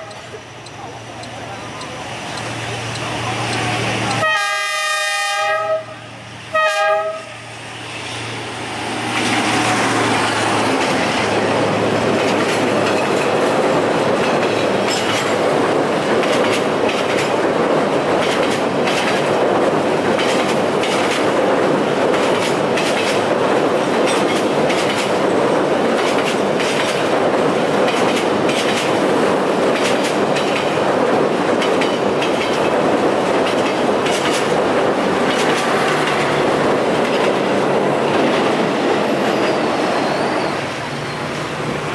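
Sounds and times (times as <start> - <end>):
train coaches rumbling past: 0.0 - 41.9
wheels clacking over rail joints: 8.8 - 40.3.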